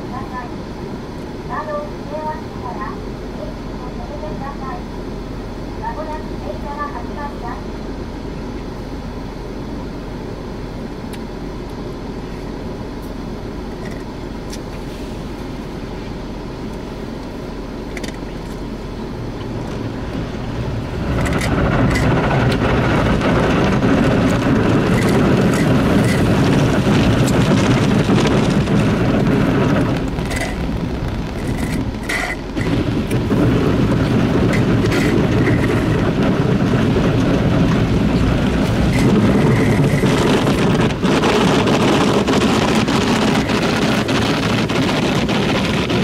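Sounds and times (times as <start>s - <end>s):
car wash machine running: 0.0s - 46.0s
water spray and rotating brushes: 19.3s - 46.0s.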